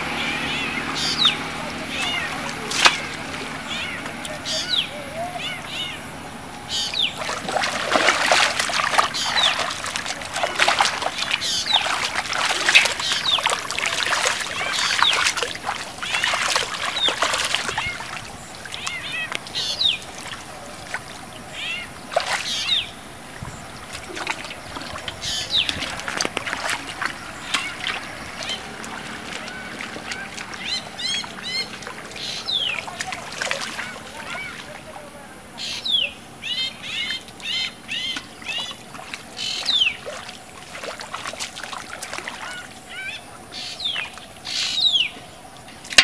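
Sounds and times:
birds chirping: 0:00.0 - 0:46.0
hands splashing in muddy water: 0:06.8 - 0:21.2, 0:23.8 - 0:34.9, 0:37.2 - 0:42.8.

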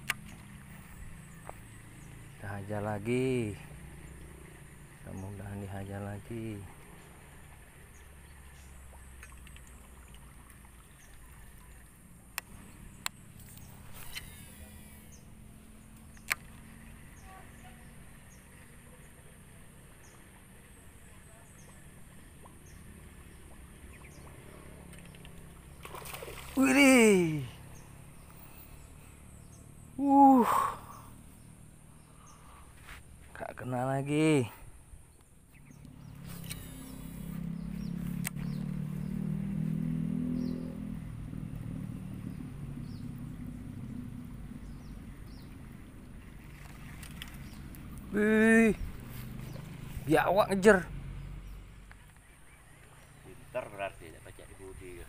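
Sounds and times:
small engine humming: 0:10.8 - 0:32.7, 0:35.5 - 0:53.4
faint insect buzzing: 0:13.0 - 0:15.4, 0:35.6 - 0:38.6.

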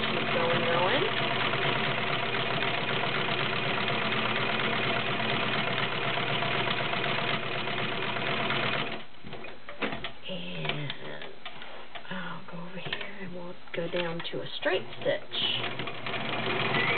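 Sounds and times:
sewing machine running: 0:00.0 - 0:09.1, 0:15.4 - 0:16.9.

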